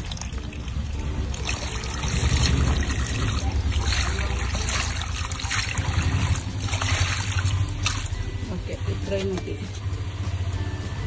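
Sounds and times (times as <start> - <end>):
water trickling and splashing: 0.0 - 8.3.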